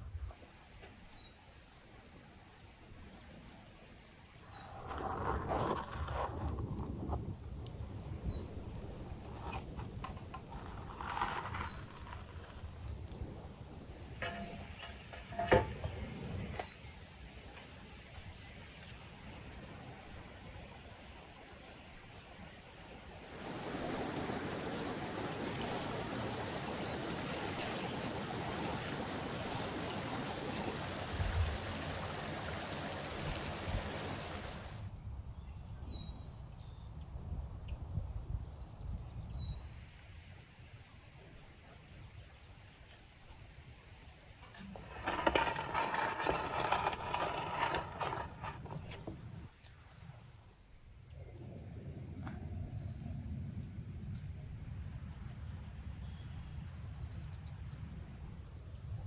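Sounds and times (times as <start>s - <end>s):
river water rushing: 23.3s - 34.8s
metal hook scraping on baking tray: 44.4s - 49.4s.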